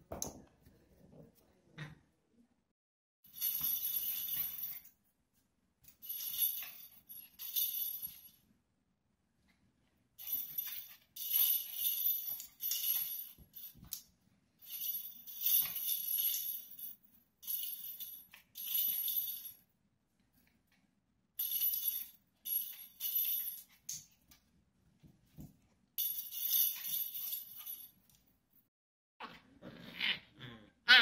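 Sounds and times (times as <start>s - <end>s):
toy bells jingling: 3.3s - 4.9s, 6.0s - 8.3s, 10.2s - 14.0s, 14.6s - 19.6s, 21.4s - 23.8s, 26.0s - 28.0s.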